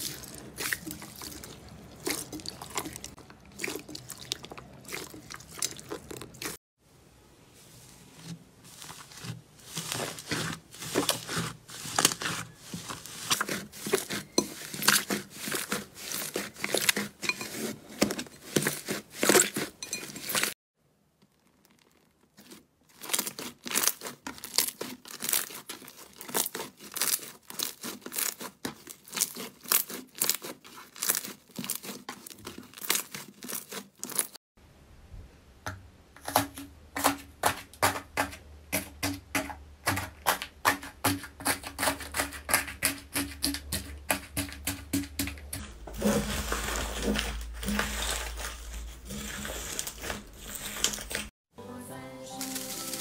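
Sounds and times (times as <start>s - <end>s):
slime crackling and tearing: 21.3s - 34.4s, 46.0s - 51.3s.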